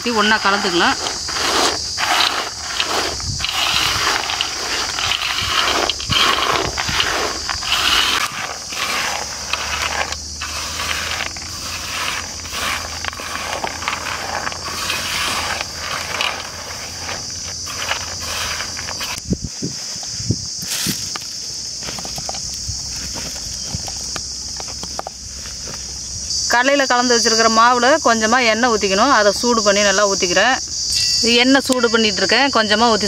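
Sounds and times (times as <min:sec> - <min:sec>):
peanuts rattling in metal basin: 0:00.0 - 0:19.2
steady high hiss: 0:00.0 - 0:33.0.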